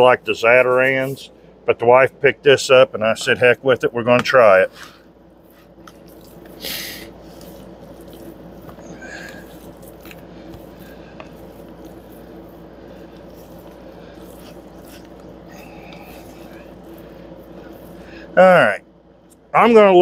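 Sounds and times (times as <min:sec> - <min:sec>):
raw chicken squishing in container: 0:05.5 - 0:18.0.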